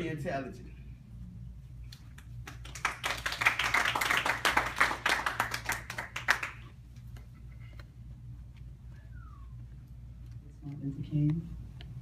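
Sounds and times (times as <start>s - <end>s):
small audience clapping: 1.9s - 7.2s.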